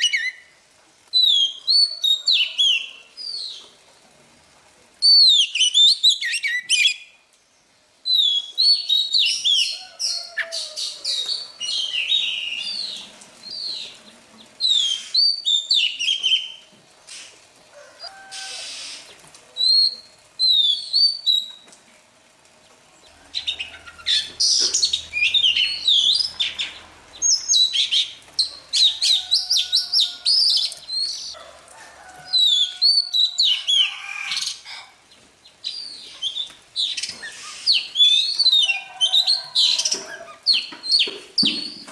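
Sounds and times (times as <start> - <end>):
bird singing whistled phrases: 8.1 - 9.7, 19.6 - 21.6, 23.4 - 28.1.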